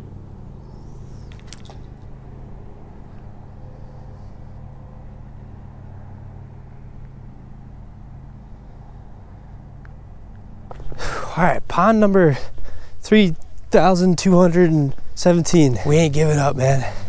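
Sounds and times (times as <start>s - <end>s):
light clicks: 1.3s - 2.1s.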